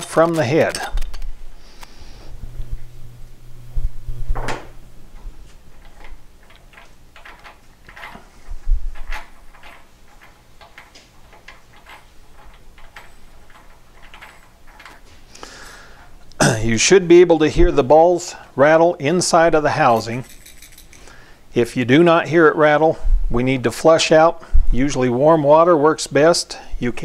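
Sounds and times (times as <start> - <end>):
metal clicks and scrapes: 5.7 - 15.2.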